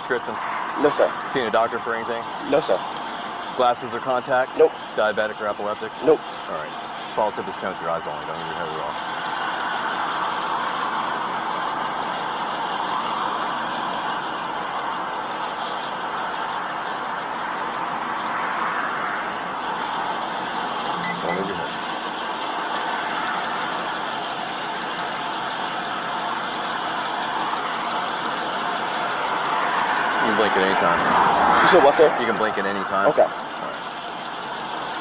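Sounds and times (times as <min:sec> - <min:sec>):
car engine idling: 0:00.0 - 0:35.0.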